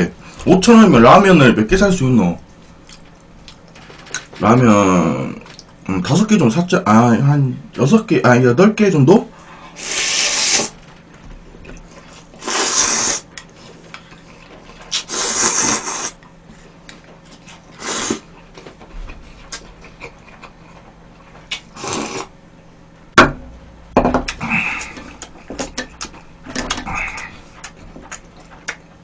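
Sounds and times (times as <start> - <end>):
person slurping noodles: 9.8 - 10.8, 12.4 - 13.3, 14.9 - 16.2, 17.7 - 18.3, 21.7 - 22.3.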